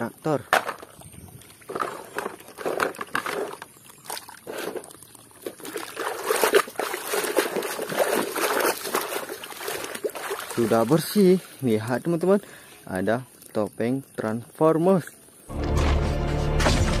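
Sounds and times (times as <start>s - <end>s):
water sloshing in plastic basin: 0.5s - 11.6s.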